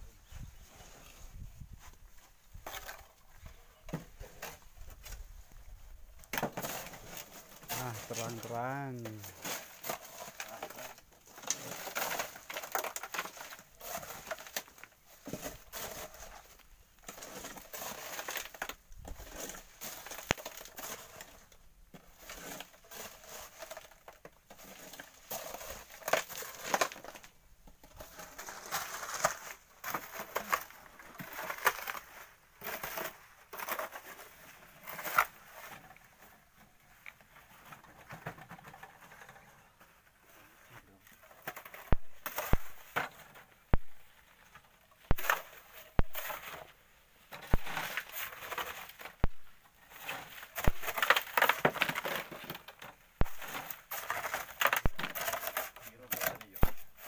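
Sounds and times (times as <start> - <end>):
gravel loaded into wheelbarrow: 0.2 - 57.0
shovel scraping sand and gravel: 6.5 - 27.1, 27.9 - 35.8.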